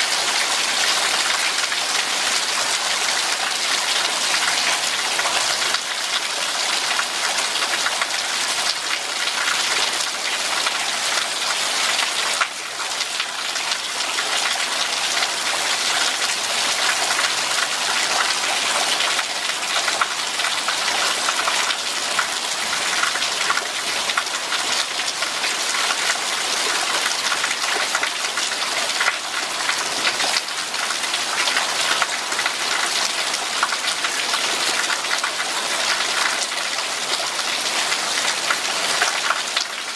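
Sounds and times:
steady rain patter: 0.0s - 39.9s.

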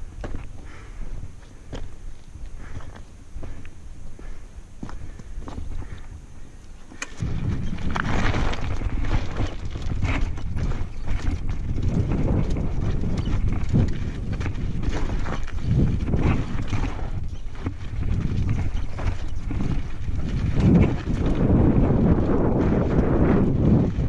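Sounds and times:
bike knocking and rattling: 6.8s - 24.0s
tyres crunching over stones: 6.9s - 24.0s
low rumble: 7.2s - 24.0s.

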